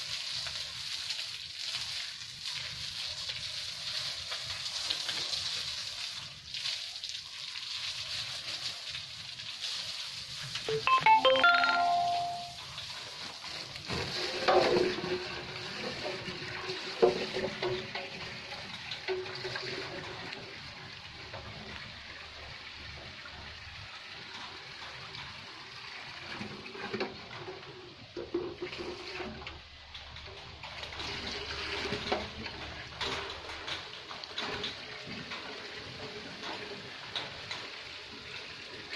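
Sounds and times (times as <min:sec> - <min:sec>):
water splashing onto concrete floor: 0:00.0 - 0:10.7.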